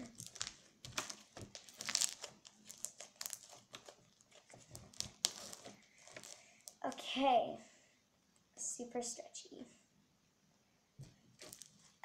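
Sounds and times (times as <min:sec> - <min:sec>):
slime crackling and popping: 0:00.0 - 0:07.1, 0:11.4 - 0:11.8.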